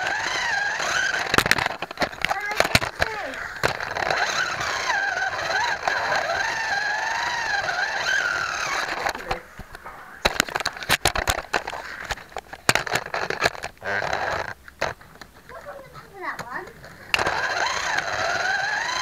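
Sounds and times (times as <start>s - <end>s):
slot car motor whining: 0.0s - 15.0s, 15.6s - 19.0s
clicks and knocks: 1.1s - 4.3s, 8.8s - 15.6s.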